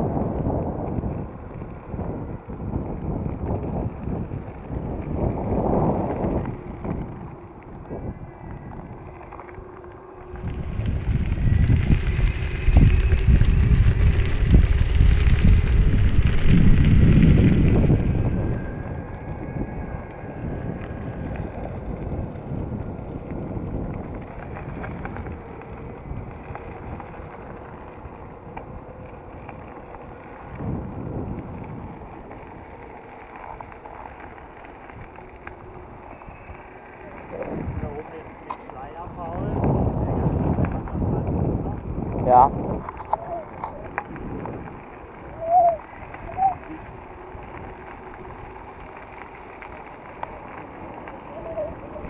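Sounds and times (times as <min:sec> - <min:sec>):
tyres rolling over gravel: 0:00.0 - 0:52.0
wind buffeting microphone: 0:00.0 - 0:52.0.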